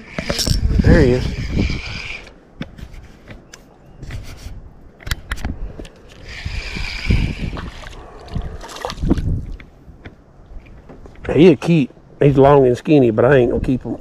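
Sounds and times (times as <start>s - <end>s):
knocks and clicks in a boat: 9.3s - 11.3s.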